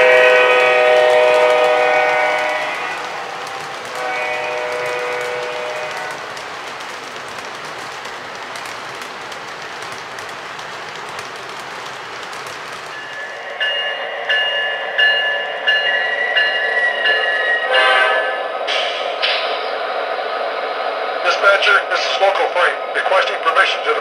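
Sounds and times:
model train wheels rolling: 0:00.0 - 0:14.7.

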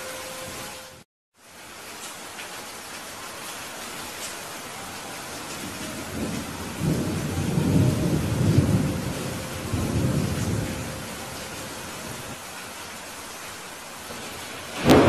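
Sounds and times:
rain on window glass: 0:01.3 - 0:15.0
low roll of thunder: 0:05.0 - 0:12.4, 0:14.1 - 0:15.0.

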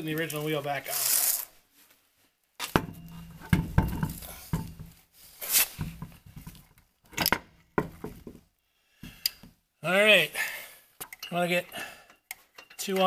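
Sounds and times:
metallic clinks and knocks: 0:12.1 - 0:13.0.

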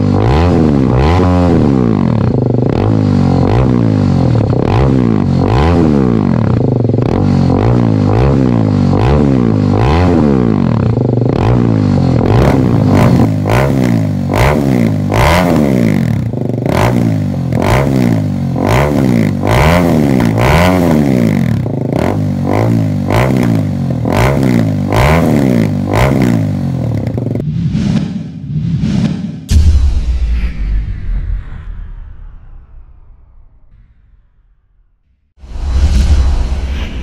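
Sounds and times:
motorcycle engine revving: 0:00.0 - 0:29.6.

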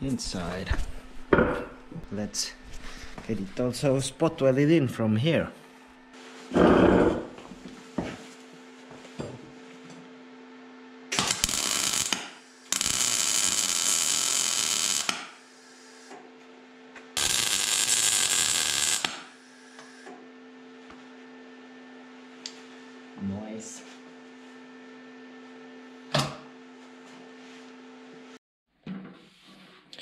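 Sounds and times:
steady low hum: 0:00.0 - 0:12.9
welder arc crackling: 0:11.1 - 0:16.1, 0:17.2 - 0:20.0.

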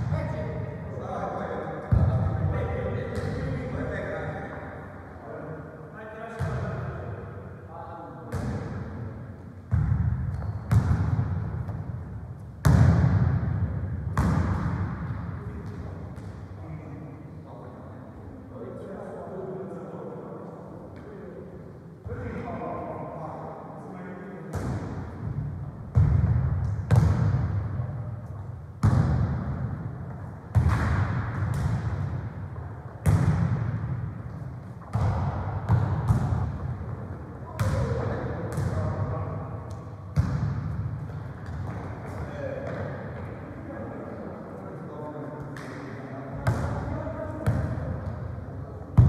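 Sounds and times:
football thudding in echoing hall: 0:00.0 - 0:49.0
football kicks and bounces: 0:14.2 - 0:14.8.

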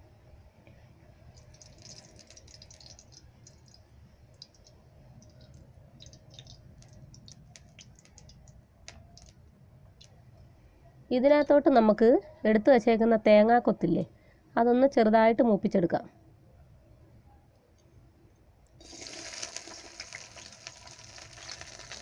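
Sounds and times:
oil ticking and crackling in a wok: 0:01.2 - 0:09.4, 0:18.8 - 0:22.0.

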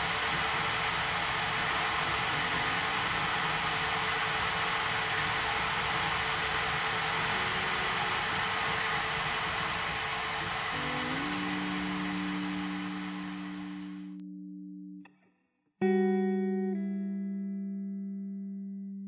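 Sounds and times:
lathe whirring hiss: 0:00.0 - 0:14.1
faint steady hum: 0:00.0 - 0:14.2.

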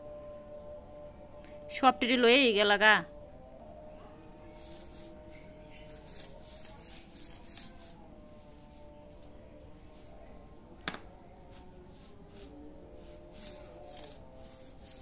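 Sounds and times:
plastic strips rustling on concrete: 0:04.5 - 0:15.0.

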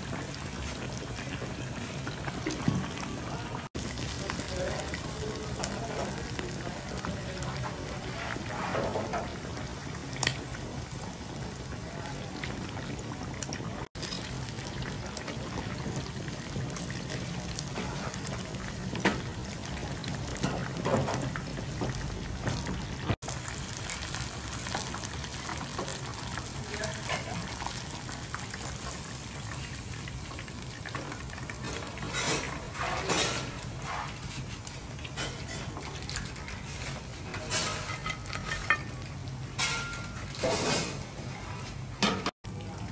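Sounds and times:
food bubbling in a pot: 0:00.0 - 0:42.9
utensils clinking against pan: 0:37.4 - 0:39.0, 0:39.6 - 0:41.0.

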